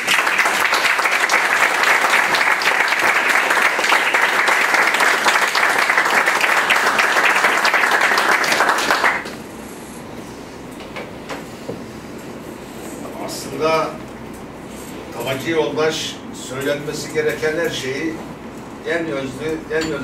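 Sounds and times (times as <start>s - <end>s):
people clapping: 0.0s - 9.4s.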